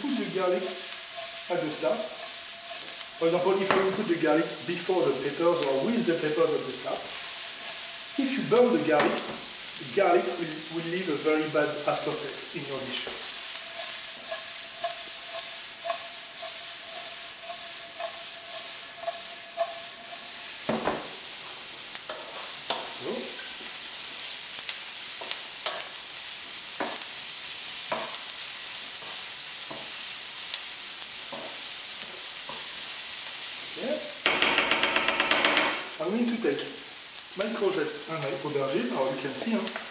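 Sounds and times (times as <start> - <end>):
vegetables sizzling in oil: 0.0 - 39.9
wooden spatula scraping pan: 0.1 - 9.5, 10.2 - 21.1.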